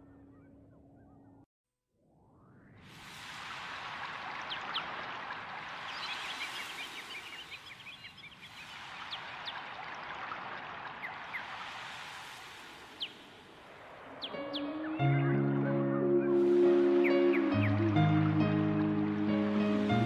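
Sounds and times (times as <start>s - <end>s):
small birds chirping: 4.3s - 11.8s, 12.5s - 20.0s.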